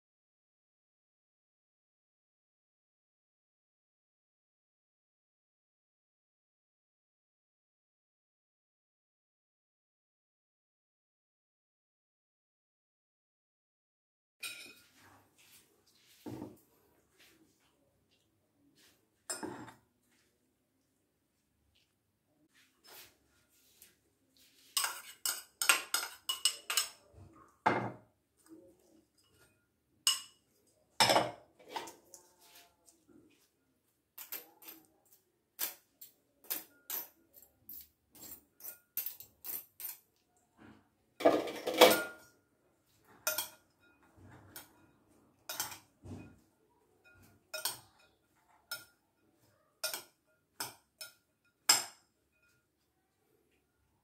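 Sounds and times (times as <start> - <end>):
metal utensils clinking on glass bowl: 14.4 - 15.0, 19.3 - 19.8, 24.6 - 32.3, 34.2 - 40.2, 41.2 - 52.8.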